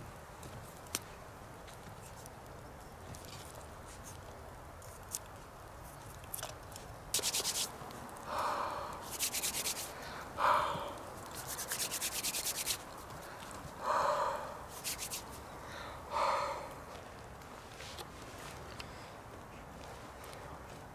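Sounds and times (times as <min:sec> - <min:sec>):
hands rubbing together: 0:07.1 - 0:07.8, 0:09.0 - 0:10.0, 0:10.7 - 0:13.8, 0:14.7 - 0:15.4.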